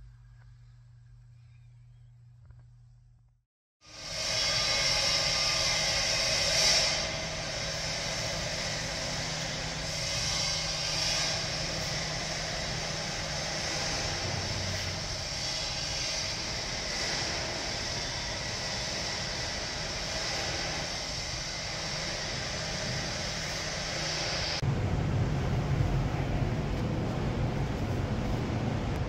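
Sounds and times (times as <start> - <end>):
machinery low hum: 0.0 - 29.0
industrial machinery hiss: 3.8 - 24.7.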